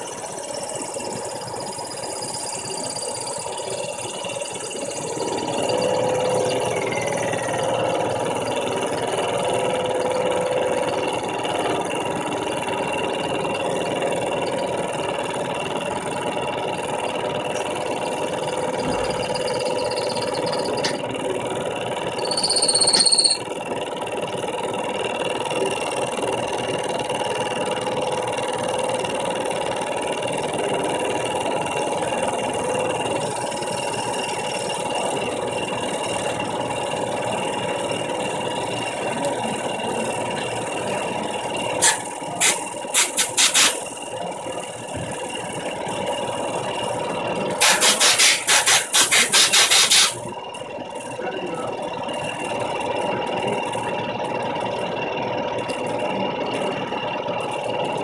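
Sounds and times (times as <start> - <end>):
milling machine whine: 0.0 - 58.0
cutter screeching: 22.1 - 23.5.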